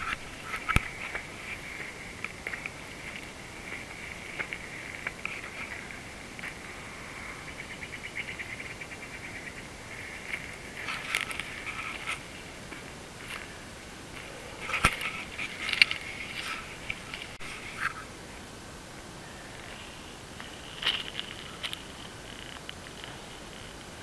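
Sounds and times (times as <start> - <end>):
footsteps through dry grass: 0.0 - 7.0, 9.8 - 17.8
insects trilling: 0.0 - 24.0.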